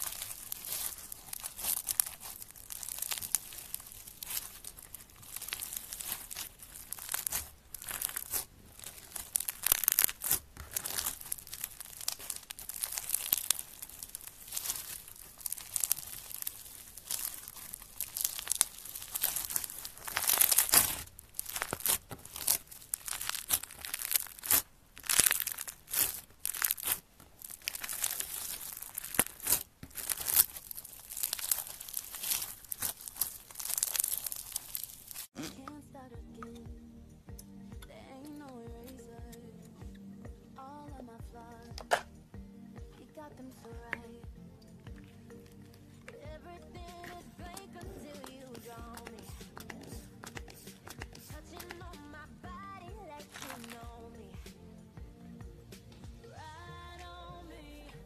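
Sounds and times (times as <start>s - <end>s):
foam beads crackling in slime: 0.0s - 35.4s, 45.0s - 54.5s.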